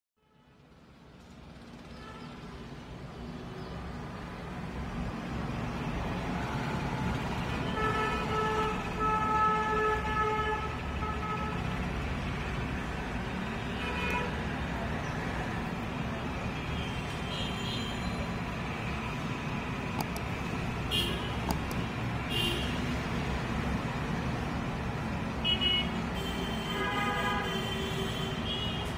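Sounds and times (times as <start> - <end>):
street traffic noise: 0.2 - 28.9
vehicle horn honking: 20.8 - 21.5, 22.3 - 22.8, 25.4 - 28.9.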